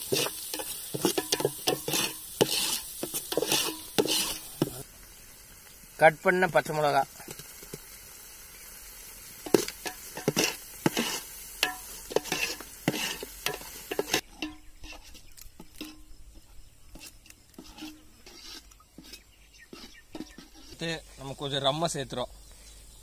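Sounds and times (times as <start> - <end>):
spoon scraping metal pot: 0.0 - 4.8, 9.4 - 21.1.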